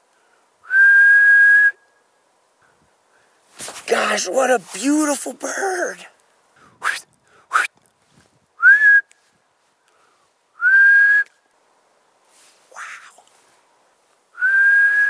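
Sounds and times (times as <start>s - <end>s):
man whistling held notes: 0.6s - 1.9s, 8.6s - 9.1s, 10.6s - 11.3s, 14.4s - 15.0s.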